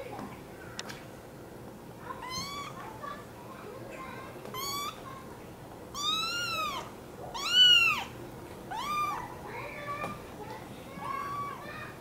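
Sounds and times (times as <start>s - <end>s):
kitten meowing: 2.2s - 2.8s, 4.5s - 5.0s, 5.9s - 9.3s.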